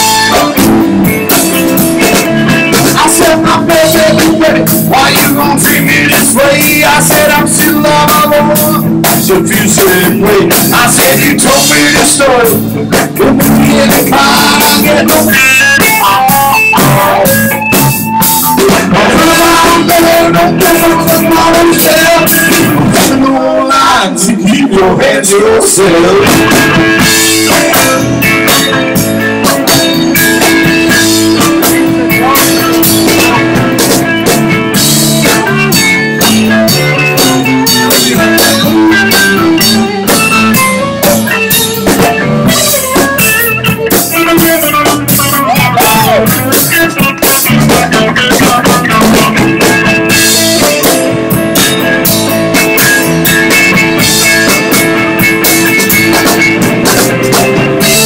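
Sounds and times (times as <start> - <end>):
electric bass: 0.0 - 58.0
electric lead guitar: 0.0 - 58.0
drum and cymbal hits: 26.2 - 58.0.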